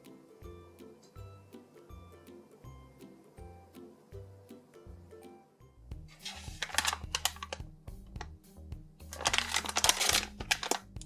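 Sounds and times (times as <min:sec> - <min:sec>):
light background music: 0:00.0 - 0:11.0
plastic packaging crinkling: 0:06.1 - 0:07.6, 0:09.1 - 0:11.0.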